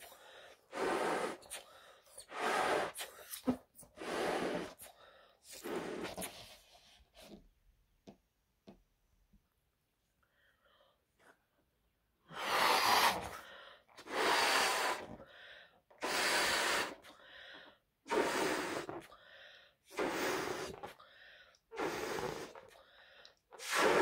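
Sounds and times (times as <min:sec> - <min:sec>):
puffs of breath into balloon: 0:00.0 - 0:07.4, 0:12.2 - 0:24.0.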